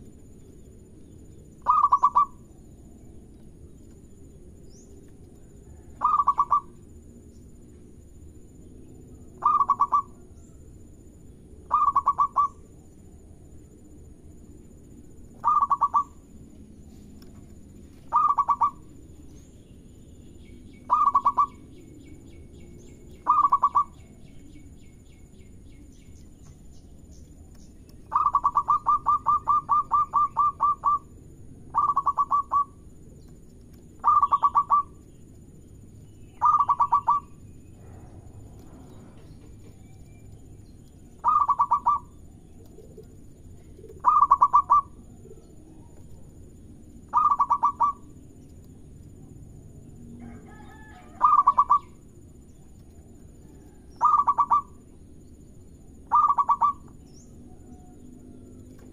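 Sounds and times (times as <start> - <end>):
dove cooing: 1.6 - 2.5, 5.7 - 6.8, 9.4 - 10.2, 11.7 - 12.6, 15.4 - 16.2, 18.1 - 18.9, 20.9 - 21.6, 23.2 - 24.0, 28.1 - 31.1, 31.7 - 32.8, 34.0 - 35.0, 36.4 - 38.0, 41.2 - 46.1, 47.1 - 48.1, 50.5 - 52.0, 53.6 - 54.8, 56.1 - 56.9.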